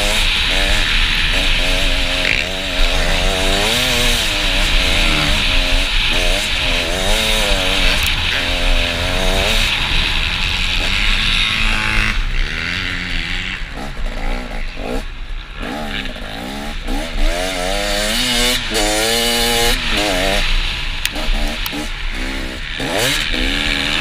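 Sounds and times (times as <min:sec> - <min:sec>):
motocross bike engine revving: 0:00.0 - 0:24.0.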